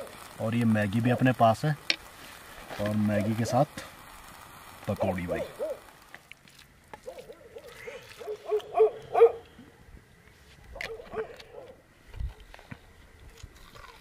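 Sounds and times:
dogs barking: 5.4 - 5.9, 7.0 - 9.5, 10.7 - 11.8.

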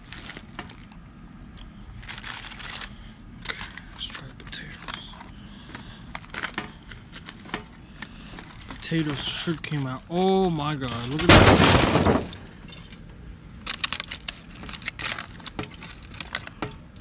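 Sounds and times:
crinkly rustles: 0.0 - 1.0, 1.9 - 7.5, 13.6 - 16.6.

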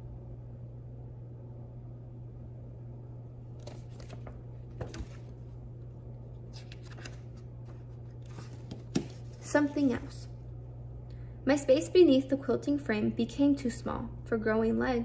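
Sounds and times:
steady low hum: 0.0 - 15.0
book pages rustling and flicking: 3.6 - 5.6, 6.4 - 10.1.

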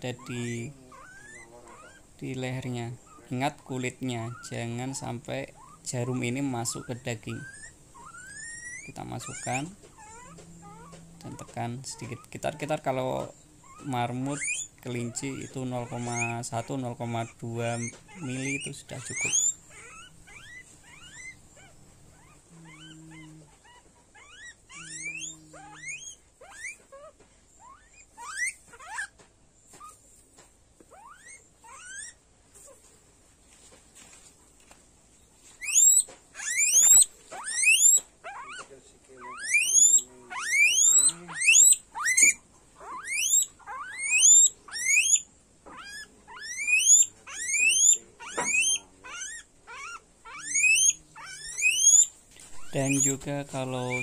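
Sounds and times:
low steady hum: 0.0 - 27.7
guinea pigs squealing: 0.0 - 30.0, 30.8 - 32.9, 35.4 - 54.0.

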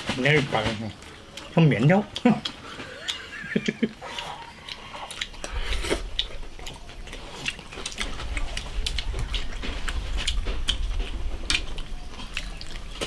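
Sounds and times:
chewing: 0.6 - 13.0.

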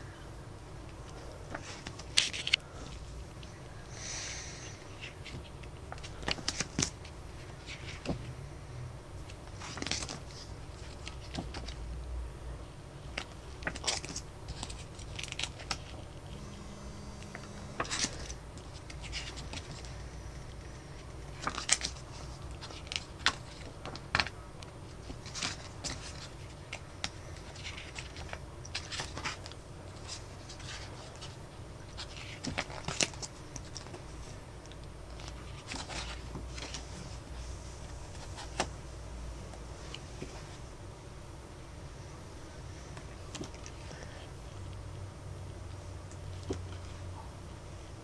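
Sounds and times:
low background rumble: 0.0 - 48.0
photobook pages turning: 0.9 - 3.6, 4.6 - 8.4, 9.2 - 11.8, 13.0 - 16.4, 17.1 - 38.8.

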